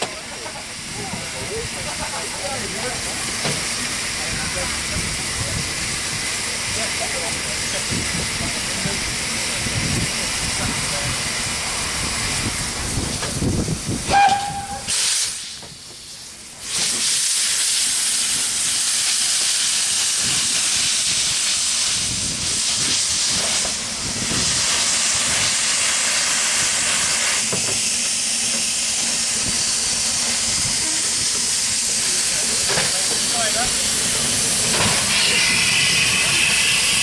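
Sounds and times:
steam hissing from drain cocks: 0.0 - 37.0
steam locomotive whistle toot: 14.0 - 15.4, 30.8 - 31.2, 35.1 - 37.0.

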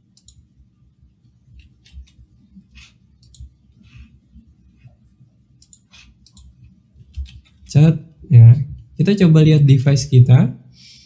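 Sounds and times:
low room hum: 0.0 - 11.0
keyboard keys clicking: 7.1 - 7.7.

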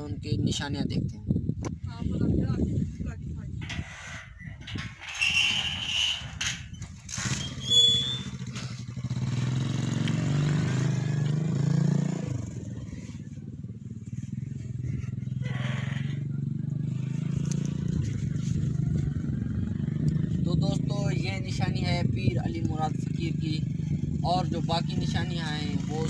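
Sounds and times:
metal gate squealing: 3.6 - 8.5
engine running: 6.2 - 20.6.

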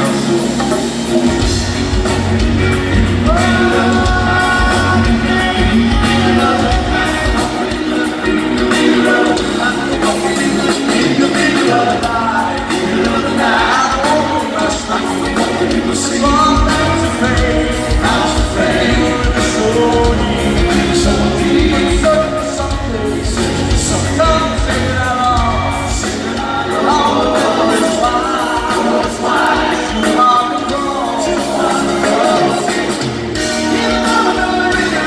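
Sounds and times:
live rock band playing: 0.0 - 35.0
male lead vocal: 0.0 - 35.0.

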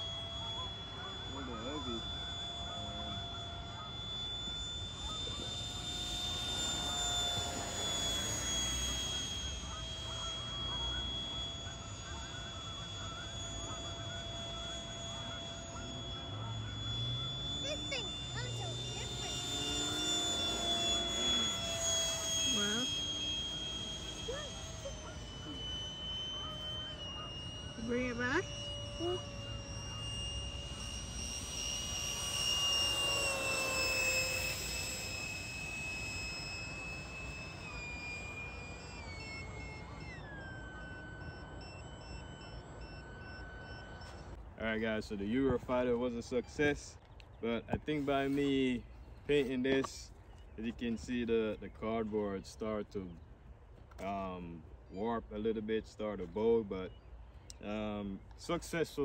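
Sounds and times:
electric ducted fan whining: 0.0 - 59.0.

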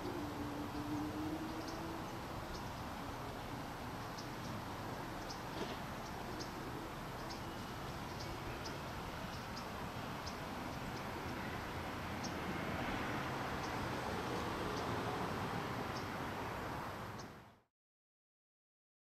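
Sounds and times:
outdoor background hiss: 0.0 - 17.7.

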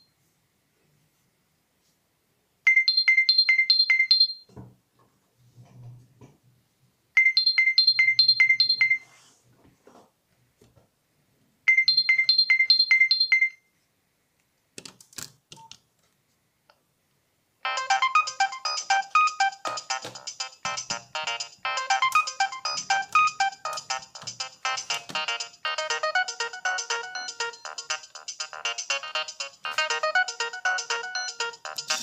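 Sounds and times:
mobile phone ringtone beeps: 2.7 - 4.4, 7.2 - 9.0, 11.7 - 13.6, 17.6 - 32.0
ringtone tune: 17.6 - 32.0.

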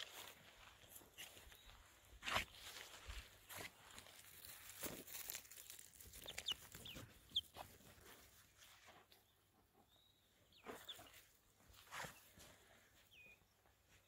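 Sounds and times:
rustling in grass: 0.0 - 9.1
chicks chirping: 5.2 - 14.0.

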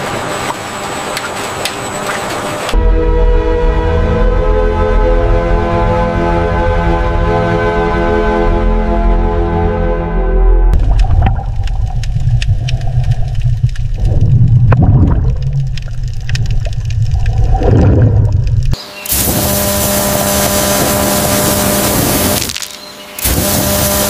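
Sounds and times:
deep underwater rumble: 10.4 - 18.8
scattered clicks: 10.8 - 17.5
bubbling: 10.8 - 18.8
high-pressure water jet hissing: 18.8 - 24.0.

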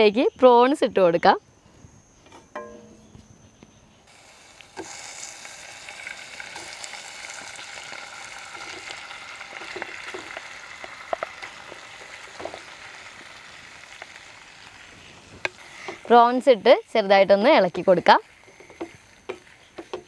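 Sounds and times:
prawns sizzling in hot oil: 4.1 - 20.0.

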